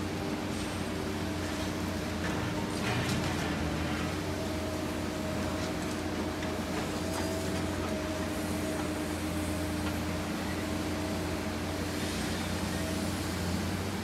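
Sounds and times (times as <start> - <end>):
excavator engine hum: 0.0 - 14.0.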